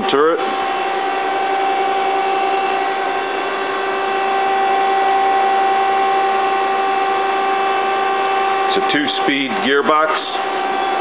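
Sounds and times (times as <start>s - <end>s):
lathe humming with whine: 0.0s - 11.0s.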